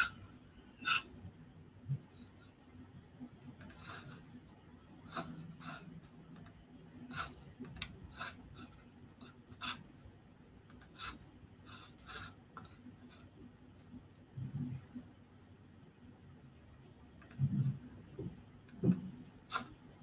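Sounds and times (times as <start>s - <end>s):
low steady hum: 0.0s - 20.0s
faint clicks and scratchy ticks: 3.5s - 4.2s, 6.0s - 6.6s, 17.2s - 19.7s.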